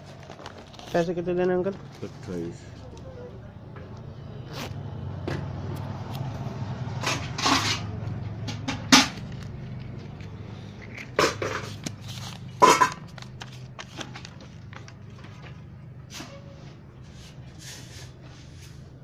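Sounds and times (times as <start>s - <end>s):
paper pages flipping and rustling: 0.0s - 2.6s, 9.1s - 15.7s.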